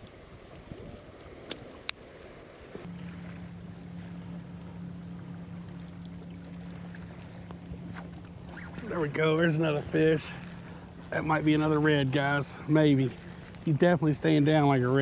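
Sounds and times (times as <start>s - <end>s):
water noise: 0.0s - 15.0s
wind: 0.0s - 15.0s
steady low hum: 2.9s - 15.0s.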